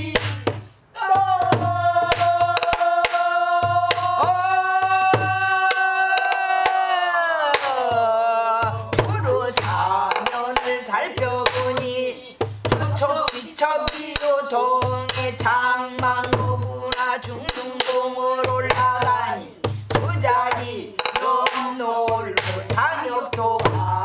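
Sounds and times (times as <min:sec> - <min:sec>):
woman singing: 0:00.0 - 0:24.0.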